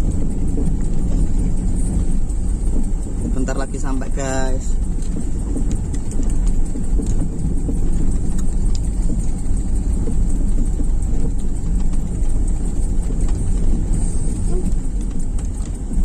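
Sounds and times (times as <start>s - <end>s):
car knocks and clicks: 0.0s - 16.0s
tyre and suspension rumble: 0.0s - 16.0s.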